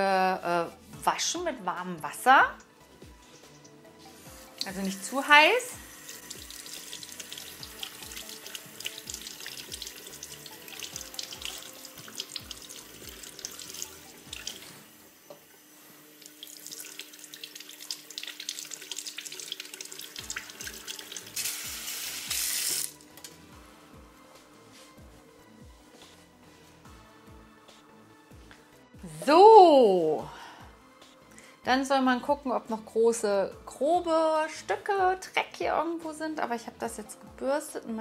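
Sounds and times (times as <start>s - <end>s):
tap water running into sink: 3.6s - 22.9s.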